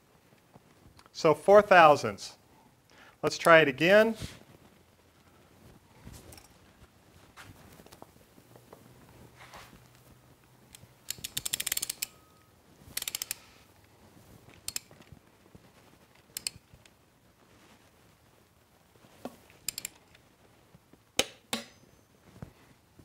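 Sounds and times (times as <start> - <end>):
torque wrench ratcheting clicks: 11.1 - 12.2, 13.0 - 13.4, 19.7 - 20.0.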